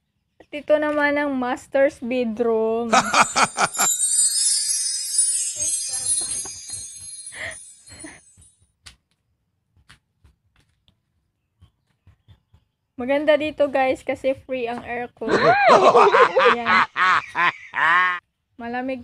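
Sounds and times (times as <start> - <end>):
tinkling bells jingle: 2.9 - 8.5.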